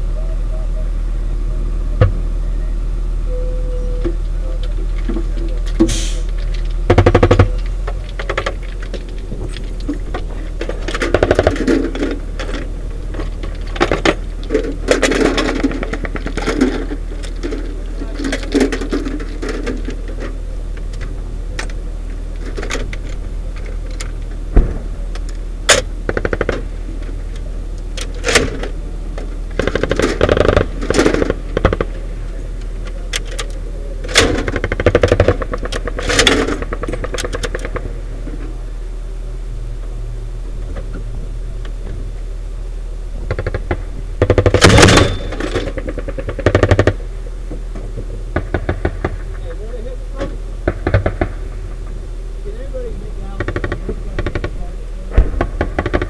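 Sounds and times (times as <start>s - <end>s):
vehicle engine idling: 0.0s - 56.0s
dense rattle: 4.0s - 56.0s.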